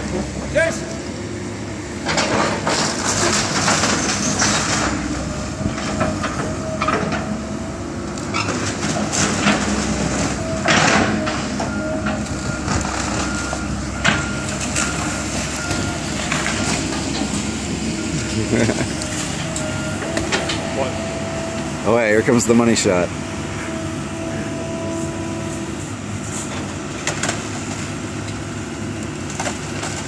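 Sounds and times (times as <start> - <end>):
excavator running: 0.0 - 30.0
wood cracking and crashing: 2.2 - 5.0, 8.4 - 11.6, 29.2 - 30.0.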